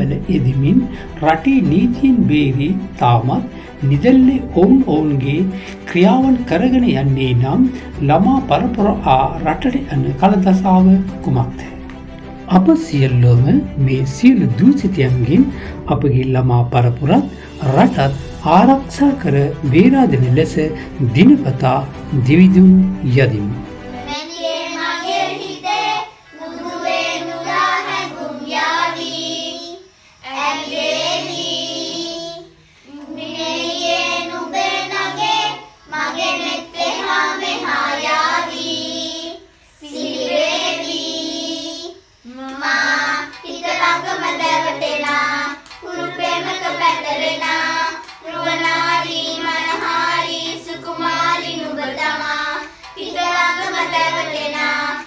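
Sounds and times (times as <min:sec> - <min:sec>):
children singing: 0:24.0 - 0:55.0.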